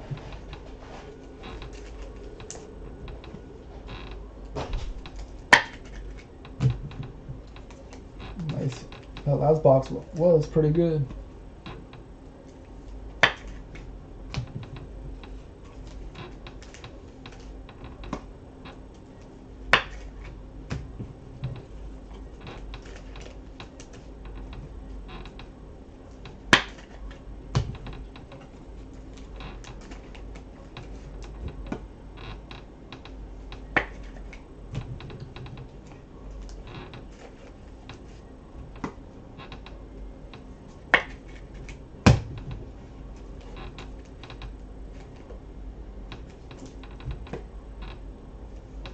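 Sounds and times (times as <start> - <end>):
plastic sleeves rustling: 0.0 - 11.8.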